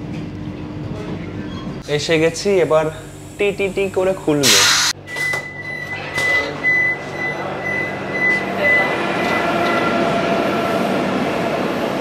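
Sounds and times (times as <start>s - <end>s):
door high beeping warning tone: 5.0s - 10.0s.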